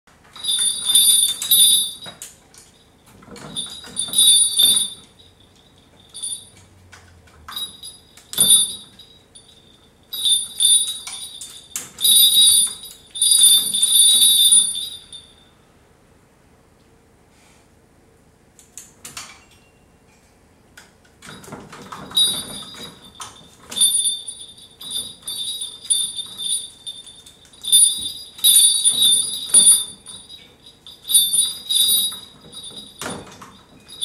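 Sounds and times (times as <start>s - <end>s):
bells jingling: 0.4s - 6.7s, 7.5s - 15.5s, 21.4s - 34.0s.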